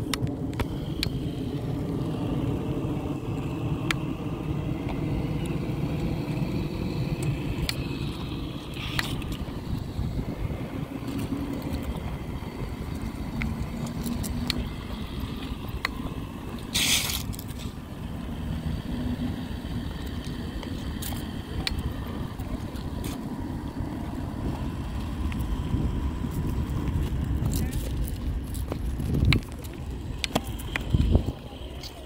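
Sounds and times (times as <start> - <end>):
toy car motor and wheels rolling: 0.0 - 32.0
brief hiss: 16.7 - 17.2.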